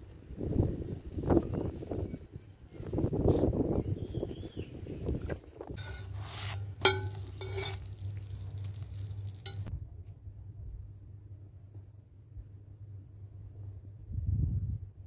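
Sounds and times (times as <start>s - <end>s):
metal tongs scraping on griddle: 5.7s - 9.7s.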